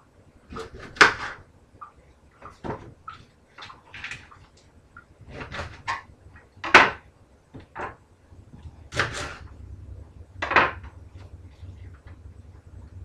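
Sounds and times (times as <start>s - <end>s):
knife cutting onion on board: 8.9s - 9.4s.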